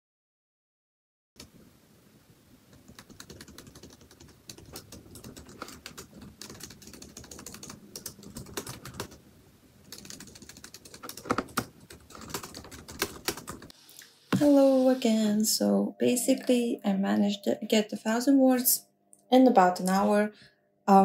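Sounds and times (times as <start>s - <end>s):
typing on laptop keyboard: 2.7s - 9.2s, 9.9s - 13.7s.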